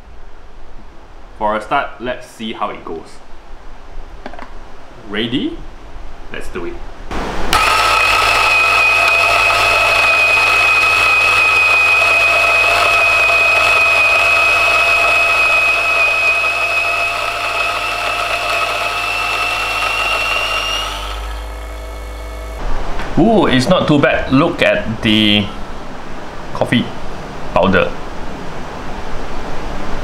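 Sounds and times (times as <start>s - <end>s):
burrs grinding beans: 7.5s - 22.6s
coffee grinder whining: 7.5s - 22.6s.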